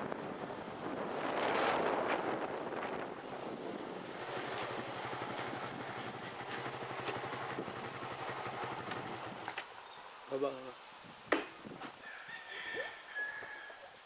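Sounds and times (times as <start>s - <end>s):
motorcycle engine running slowly: 1.8s - 9.6s.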